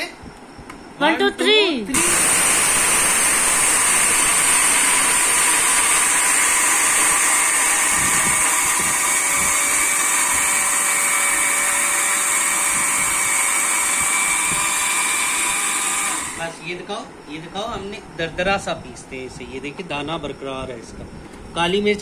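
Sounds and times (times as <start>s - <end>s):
electric spice grinder whining: 1.9s - 16.6s.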